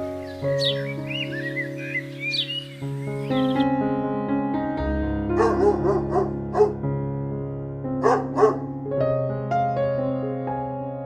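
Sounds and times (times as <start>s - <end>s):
soft piano music: 0.0s - 11.0s
dog yipping barks: 5.4s - 6.8s, 8.0s - 8.6s.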